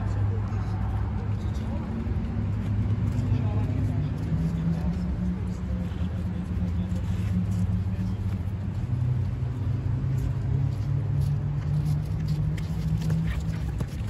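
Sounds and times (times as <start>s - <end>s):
low engine-like hum: 0.0s - 14.0s.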